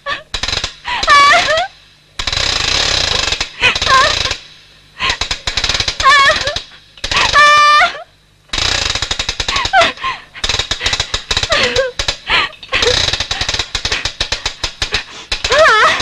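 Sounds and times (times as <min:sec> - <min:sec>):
rapid mechanical rattle: 0:00.3 - 0:07.8, 0:08.5 - 0:16.0
woman screaming: 0:01.0 - 0:01.7, 0:03.6 - 0:04.2, 0:06.0 - 0:06.6, 0:07.2 - 0:08.0, 0:15.5 - 0:16.0.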